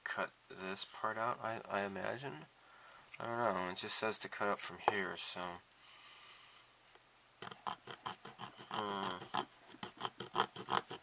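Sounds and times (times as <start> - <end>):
knife scraping vinyl: 7.4 - 11.0.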